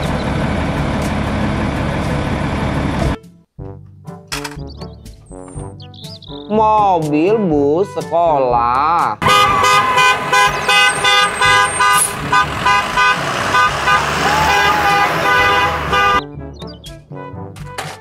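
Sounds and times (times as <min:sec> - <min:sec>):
vehicle horn tooting: 0:09.2 - 0:16.2.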